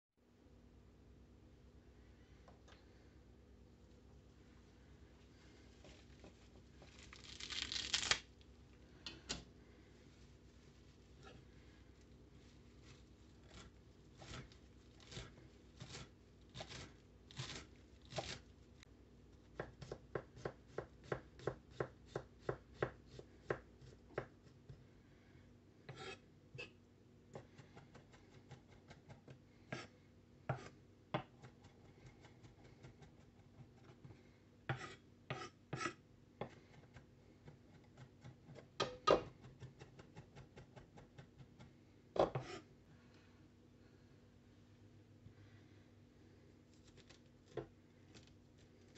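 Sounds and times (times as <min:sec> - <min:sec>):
knife chopping on wooden board: 0:19.6 - 0:24.4, 0:30.5 - 0:31.6.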